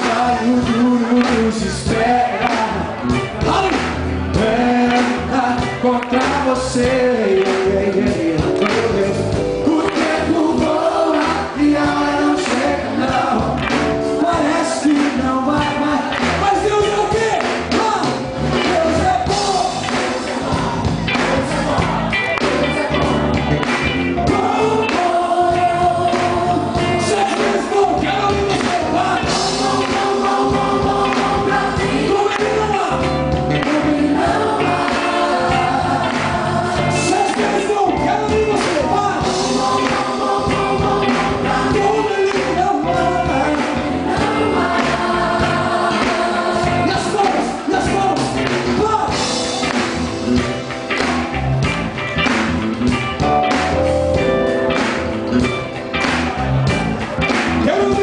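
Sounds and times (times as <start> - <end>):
drums: 0.0 - 58.0
electric guitar: 0.0 - 58.0
choir singing: 9.4 - 13.6, 19.4 - 23.6, 24.3 - 47.7.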